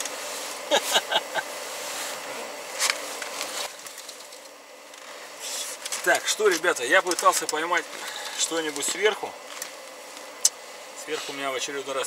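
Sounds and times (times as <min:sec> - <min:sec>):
faint hiss: 0:00.0 - 0:12.0
man laughing: 0:00.6 - 0:01.6.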